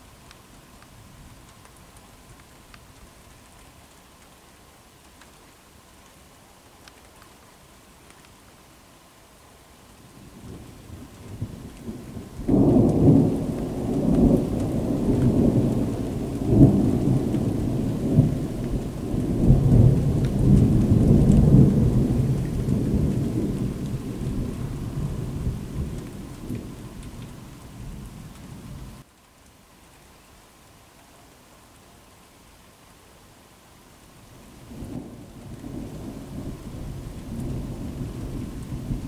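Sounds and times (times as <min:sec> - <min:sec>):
faint rain pattering: 0:00.0 - 0:39.0
thunder rumbling: 0:10.4 - 0:29.0, 0:34.7 - 0:39.0.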